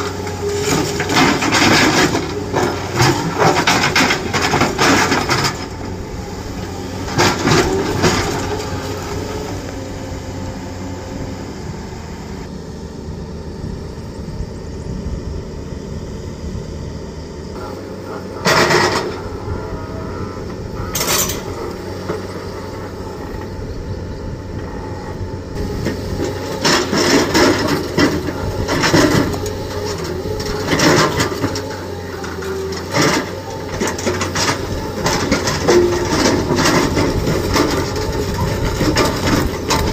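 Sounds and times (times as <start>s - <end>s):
hydraulic breaker hammering rock: 0.0s - 9.4s, 25.6s - 39.9s
diesel engines running: 0.0s - 39.9s.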